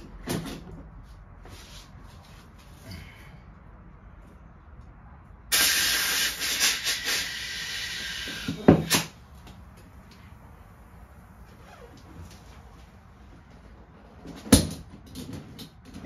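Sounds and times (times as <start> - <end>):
compressed air hissing from hose: 5.5 - 9.1.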